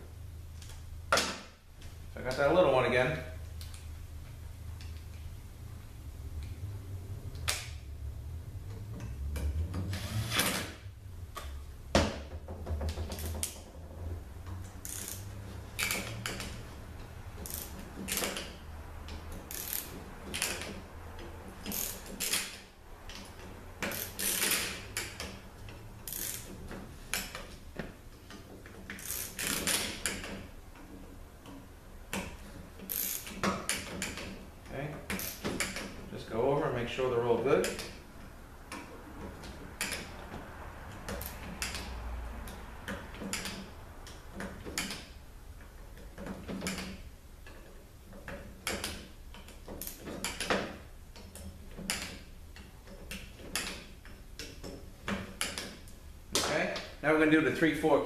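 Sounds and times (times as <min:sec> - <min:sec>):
ratchet wrench clicking: 0:14.7 - 0:16.6, 0:17.4 - 0:18.5, 0:19.1 - 0:20.7, 0:21.6 - 0:22.6, 0:23.8 - 0:25.4, 0:26.0 - 0:26.5, 0:28.9 - 0:30.3, 0:32.9 - 0:34.3, 0:35.1 - 0:35.8.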